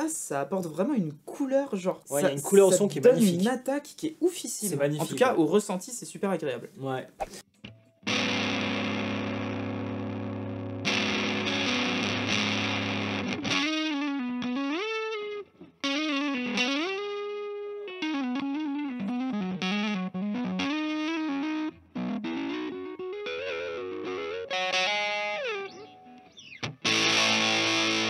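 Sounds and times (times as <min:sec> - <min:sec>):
distorted electric guitar: 0:07.7 - 0:28.0.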